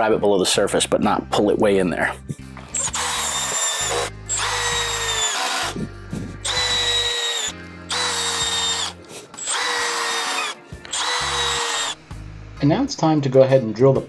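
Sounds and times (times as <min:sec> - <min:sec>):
cordless drill driving screws: 0:02.7 - 0:05.8, 0:06.4 - 0:12.0.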